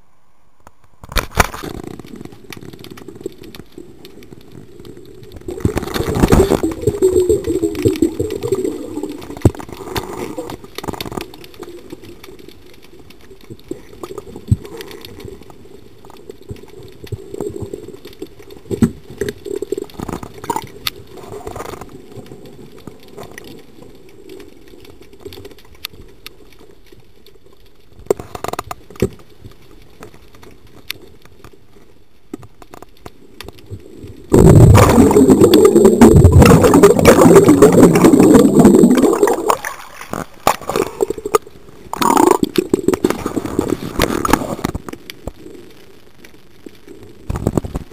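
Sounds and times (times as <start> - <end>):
muffled underwater noise: 33.3 - 47.9.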